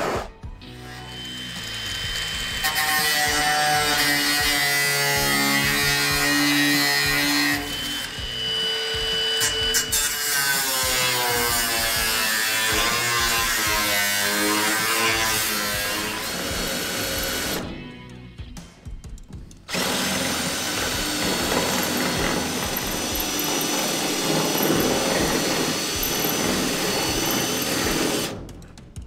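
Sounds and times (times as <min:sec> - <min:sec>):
background music with held notes: 0:00.1 - 0:19.7
angle grinder cutting steel: 0:00.8 - 0:17.6, 0:19.7 - 0:28.4.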